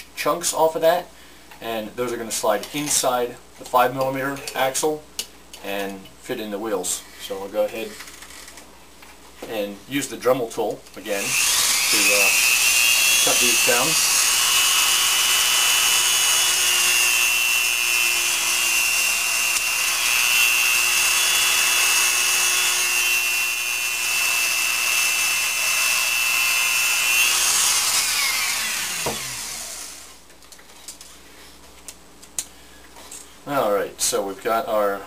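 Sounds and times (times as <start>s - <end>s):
rotary tool cutting with a whine: 11.2s - 30.2s.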